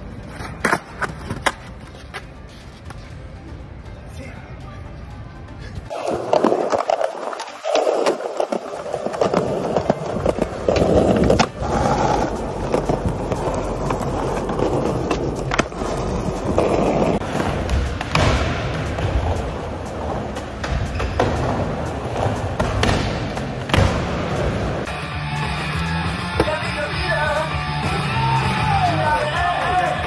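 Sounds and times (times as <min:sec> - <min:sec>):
skateboard wheels rolling on concrete: 0:00.0 - 0:03.4, 0:05.6 - 0:30.0
skateboards clacking and landing: 0:05.9 - 0:24.9.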